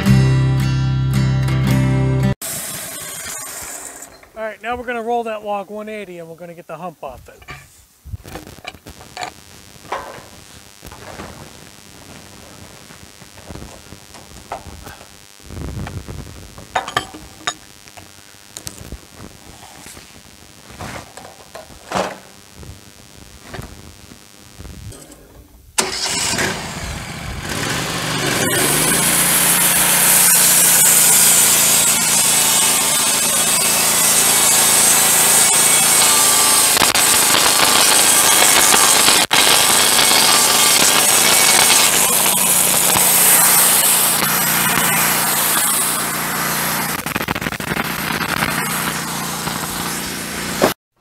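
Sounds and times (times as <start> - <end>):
sawmill engine starting and running: 2.2 - 4.4, 25.8 - 50.8.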